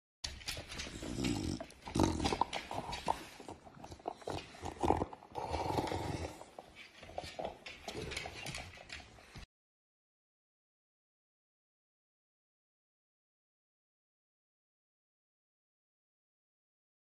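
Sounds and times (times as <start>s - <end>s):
dogs sniffing and snuffling: 0.2s - 9.5s.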